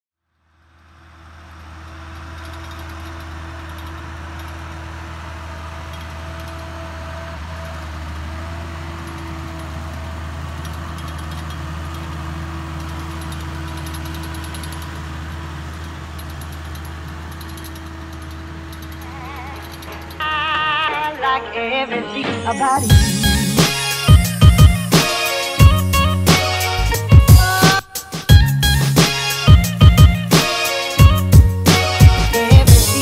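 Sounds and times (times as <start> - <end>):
tractor diesel engine drone: 0.3 - 33.0
light high-pitched rattle: 0.6 - 21.2.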